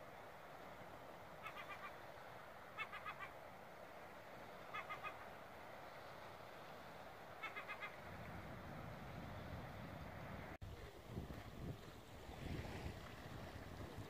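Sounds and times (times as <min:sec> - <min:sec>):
wind and water hiss: 0:00.0 - 0:14.0
bird calling: 0:01.3 - 0:02.1, 0:02.7 - 0:03.4, 0:04.5 - 0:05.4, 0:07.3 - 0:08.2.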